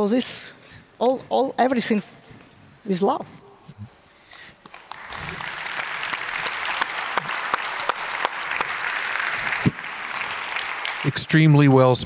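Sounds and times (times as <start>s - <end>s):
audience applauding: 4.6s - 11.9s.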